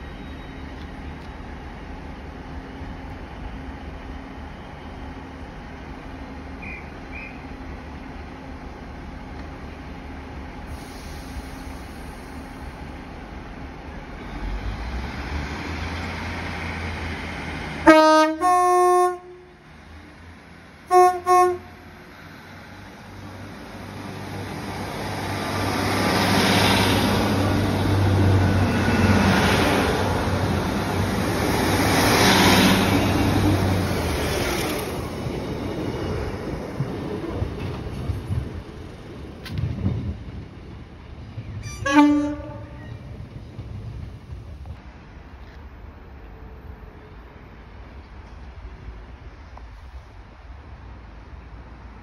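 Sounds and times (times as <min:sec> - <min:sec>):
diesel train engines revving: 0:00.0 - 0:52.0
two-tone train horn: 0:17.8 - 0:19.6, 0:20.9 - 0:21.9, 0:41.6 - 0:43.0.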